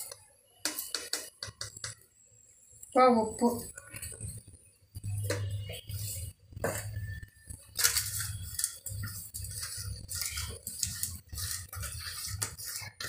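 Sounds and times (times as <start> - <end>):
hands squelching marinade: 7.8 - 13.0.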